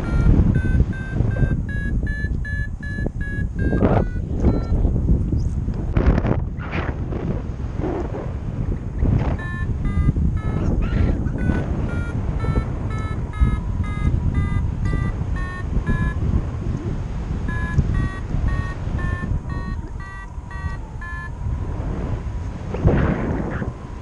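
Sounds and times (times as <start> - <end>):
variometer beeping: 0.0 - 5.0, 8.8 - 22.1
wind rushing across microphone: 0.0 - 24.0.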